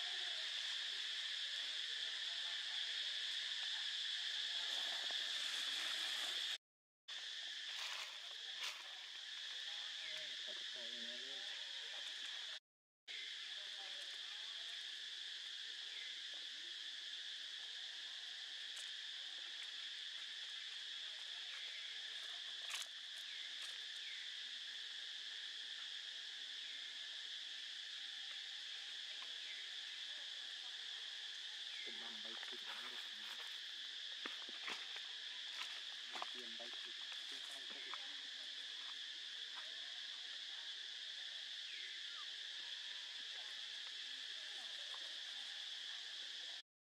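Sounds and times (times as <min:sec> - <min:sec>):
insects droning: 0:00.0 - 0:46.6.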